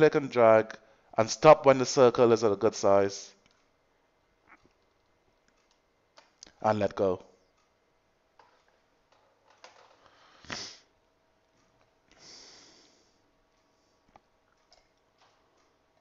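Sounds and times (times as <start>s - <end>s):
person sniffing: 10.2s - 10.9s, 12.1s - 13.2s
soft hissing breath: 12.1s - 14.0s.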